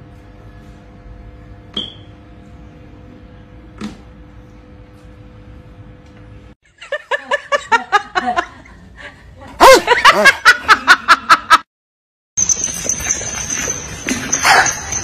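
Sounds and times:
electric fan hum: 0:00.0 - 0:11.4
person laughing hard: 0:06.8 - 0:11.6.

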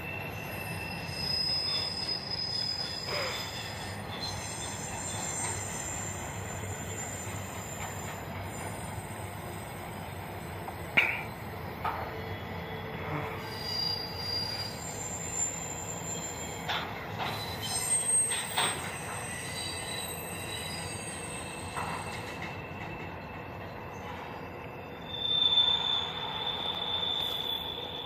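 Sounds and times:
train wheels squealing on rails: 0:00.0 - 0:28.0.

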